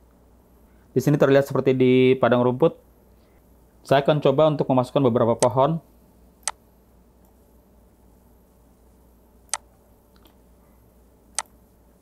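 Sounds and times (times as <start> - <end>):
faint steady hiss: 0.0 - 12.0
computer mouse clicks: 9.5 - 10.4, 11.3 - 11.5.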